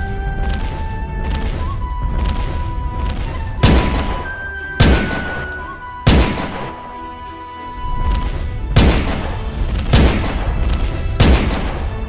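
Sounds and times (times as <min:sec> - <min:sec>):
background music: 0:00.0 - 0:12.0
pistol shots: 0:03.2 - 0:07.0, 0:08.2 - 0:12.0
steady high tone: 0:03.9 - 0:07.1.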